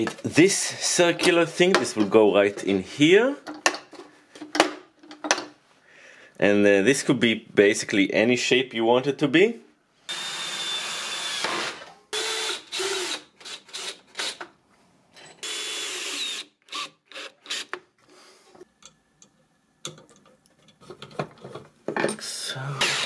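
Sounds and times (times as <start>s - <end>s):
cordless drill whining: 10.1s - 14.3s, 15.4s - 17.8s.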